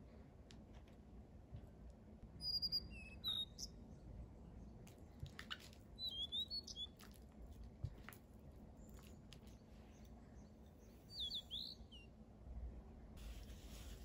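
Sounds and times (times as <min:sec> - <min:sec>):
small birds chirping: 0:02.3 - 0:12.2.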